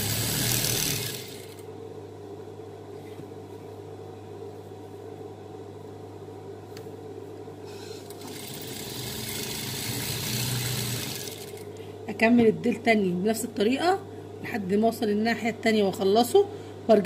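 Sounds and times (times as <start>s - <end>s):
sewing machine motor humming: 0.0s - 1.6s, 8.0s - 11.7s
sewing machine stitching: 0.0s - 1.6s, 8.0s - 11.7s.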